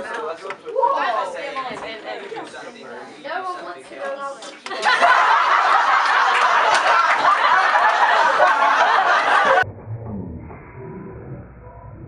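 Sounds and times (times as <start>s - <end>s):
students laughing: 4.6s - 9.6s
muffled low sound: 9.6s - 12.0s.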